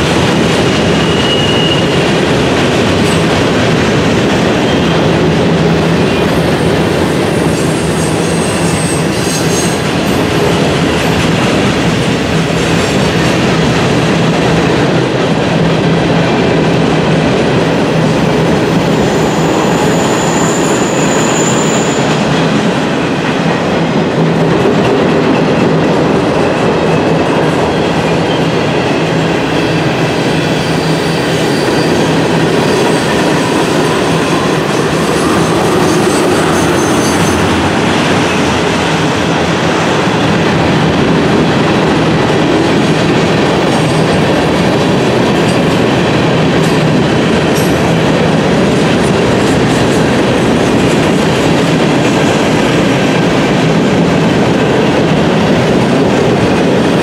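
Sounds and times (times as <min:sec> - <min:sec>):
high wheel squeal: 0:00.9 - 0:02.0, 0:07.3 - 0:09.8, 0:18.8 - 0:22.2, 0:30.4 - 0:38.5.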